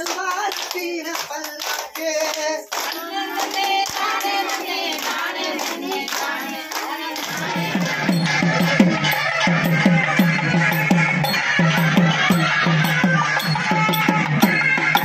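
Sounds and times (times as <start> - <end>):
hands clapping in time: 0.0 - 15.0
women singing folk song: 2.8 - 8.2
recorded music with steady beat: 7.3 - 15.0.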